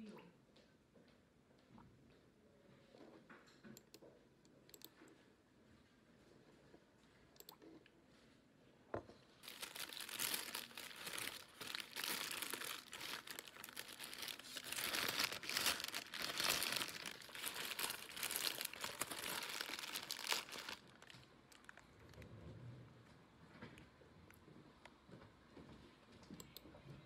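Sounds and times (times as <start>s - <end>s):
paper bag crinkling and rustling: 9.4s - 22.2s.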